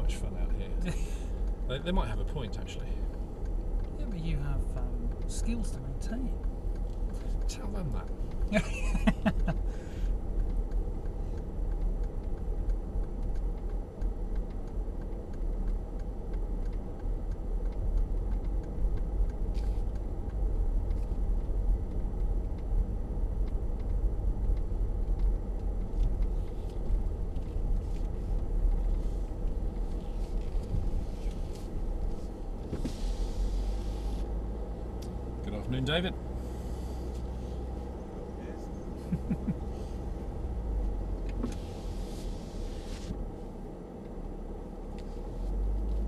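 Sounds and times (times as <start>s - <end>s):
car engine and tyre rumble: 0.0s - 46.0s.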